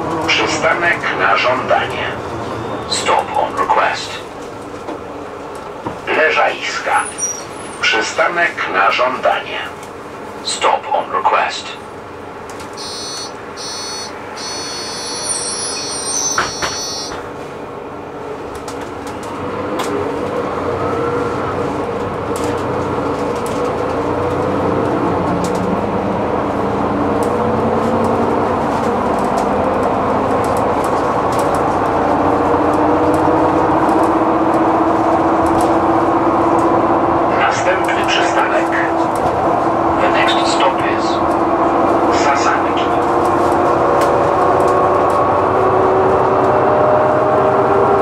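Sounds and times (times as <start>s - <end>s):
bus engine accelerating: 0.0s - 48.0s
high electronic beeping: 12.8s - 17.2s.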